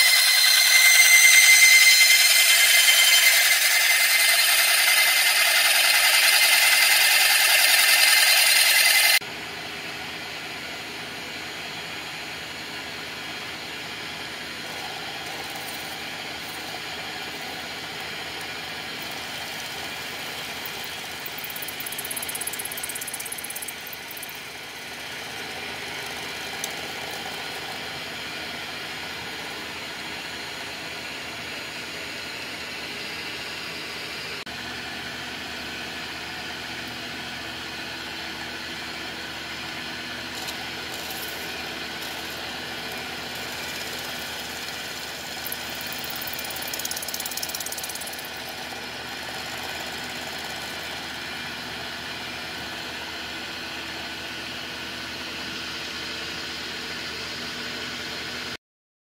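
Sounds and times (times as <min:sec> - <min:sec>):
end mill cutting plastic: 0:00.0 - 0:09.2, 0:40.2 - 0:51.2
motor hum: 0:00.0 - 0:09.2, 0:38.4 - 0:53.0
milling machine whine: 0:00.0 - 0:09.3, 0:11.4 - 0:56.5.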